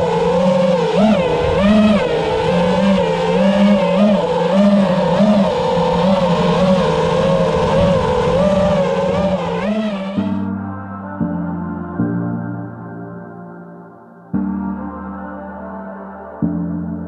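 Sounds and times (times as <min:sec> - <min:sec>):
drone motors whining: 0:00.0 - 0:10.6.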